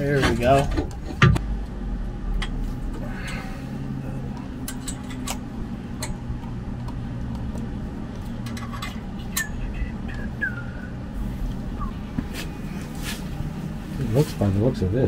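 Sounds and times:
low hum: 0:00.0 - 0:15.0
metal parts clicking and tapping: 0:04.3 - 0:07.5, 0:08.1 - 0:09.5.

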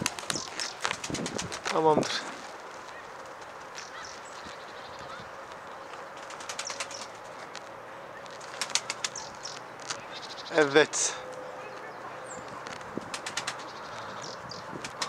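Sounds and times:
pigeon wings flapping: 0:00.0 - 0:04.0, 0:06.0 - 0:07.5, 0:08.3 - 0:09.3, 0:12.5 - 0:14.1, 0:14.7 - 0:15.0
faint outdoor hiss: 0:00.0 - 0:15.0.

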